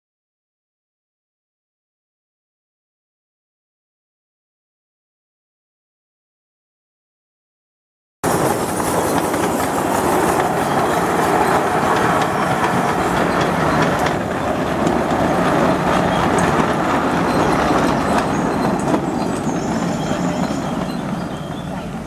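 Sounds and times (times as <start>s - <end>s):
miniature steam locomotive running: 8.2s - 22.0s.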